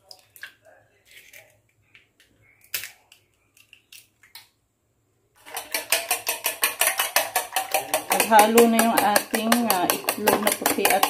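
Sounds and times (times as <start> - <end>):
egg cracking on bowl rim: 5.4 - 11.0
fork beating eggs in metal bowl: 5.4 - 11.0.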